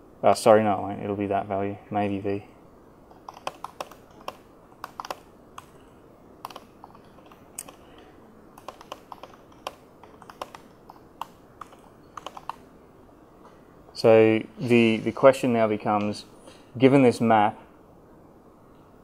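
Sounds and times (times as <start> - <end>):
laptop keyboard typing: 3.1 - 5.8, 6.4 - 8.0, 8.6 - 12.6.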